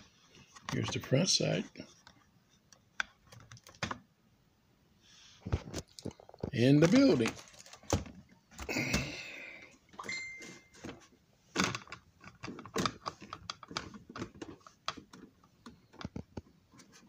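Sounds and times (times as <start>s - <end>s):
thin high tone: 10.0s - 10.8s.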